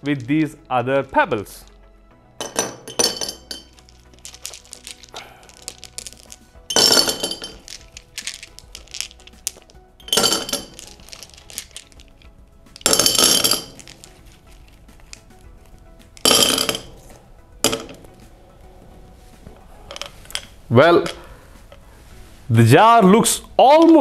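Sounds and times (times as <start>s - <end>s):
soft background music: 0.0s - 24.0s
pebbles clinking in glass jar: 2.4s - 15.4s, 16.1s - 17.0s.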